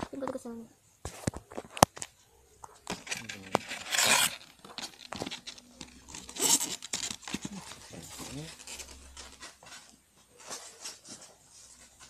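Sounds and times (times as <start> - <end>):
packaging ripping: 3.1 - 7.8.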